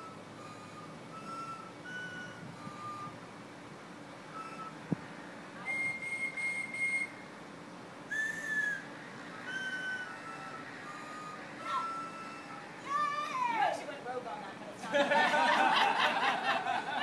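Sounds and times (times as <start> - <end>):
people whistling a melody: 0.0 - 3.2, 4.3 - 4.9, 5.6 - 7.2, 8.1 - 12.6.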